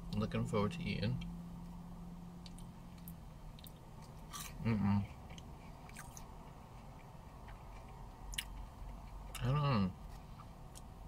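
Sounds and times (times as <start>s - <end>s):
chewing and crunching: 2.4s - 11.0s.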